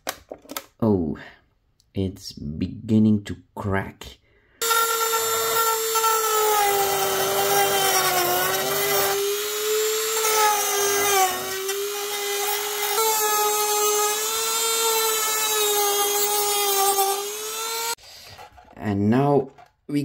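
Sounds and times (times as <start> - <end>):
rotary tool cutting plastic: 4.6 - 18.5.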